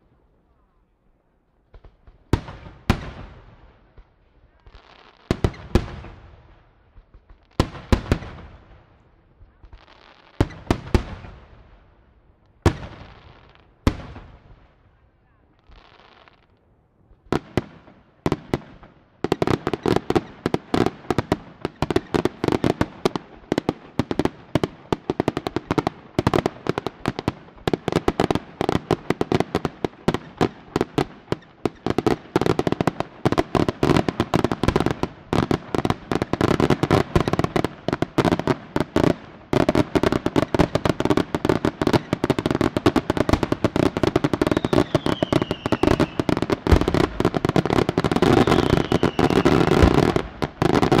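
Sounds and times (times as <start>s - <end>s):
fireworks bursts and crackling: 1.6s - 11.9s, 12.5s - 14.8s, 15.5s - 51.0s
fireworks bangs: 17.1s - 51.0s.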